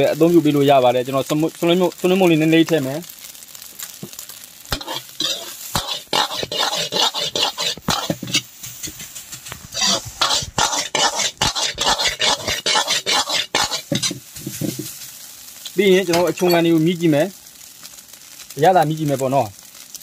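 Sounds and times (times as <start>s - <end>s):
rice sizzling: 0.0s - 20.0s
metal ladle scraping a wok: 4.7s - 15.0s.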